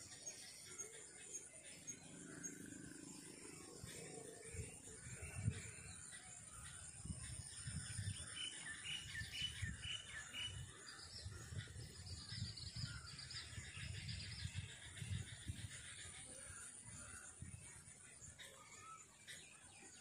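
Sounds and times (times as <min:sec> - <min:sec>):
small birds chirping: 0:00.0 - 0:20.0.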